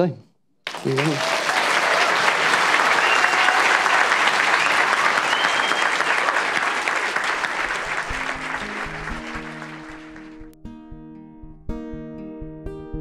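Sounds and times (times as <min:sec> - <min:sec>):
audience applauding: 0:00.6 - 0:10.6.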